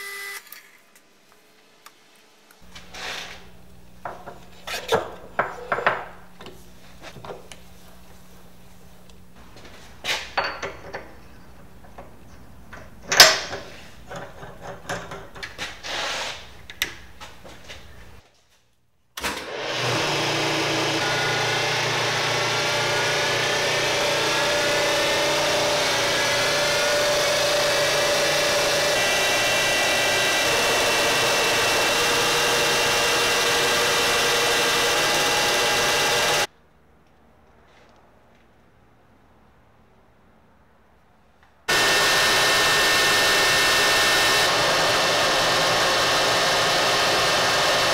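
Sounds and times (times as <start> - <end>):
milling machine cutting metal: 19.6 - 36.5, 41.7 - 47.9.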